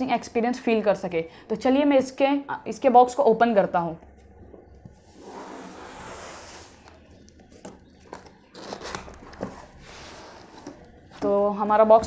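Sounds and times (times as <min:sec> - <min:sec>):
cardboard box scraping on table: 0:05.0 - 0:06.9, 0:08.6 - 0:10.8.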